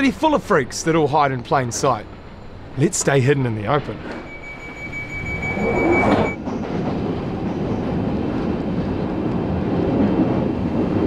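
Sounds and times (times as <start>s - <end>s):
train rumbling: 0.0s - 11.0s
steady high tone: 2.8s - 6.5s.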